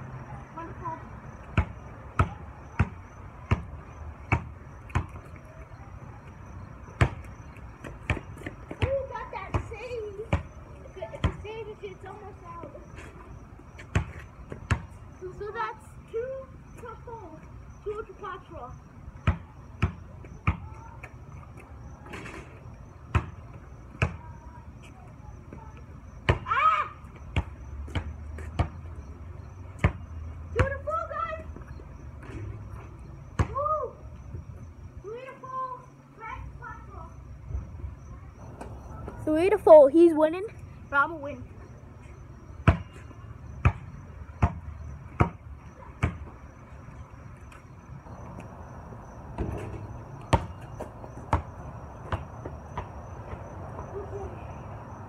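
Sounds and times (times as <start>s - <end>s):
basketball bouncing on pavement: 0.8s - 15.6s, 19.1s - 34.7s, 38.3s - 40.3s, 41.6s - 46.7s, 47.5s - 55.0s
basketball bouncing: 1.5s - 5.2s, 6.9s - 10.6s, 13.8s - 15.0s, 19.2s - 20.8s, 23.1s - 23.4s, 27.3s - 28.8s, 42.6s - 43.0s, 43.6s - 45.4s, 46.0s - 46.4s, 48.1s - 53.9s.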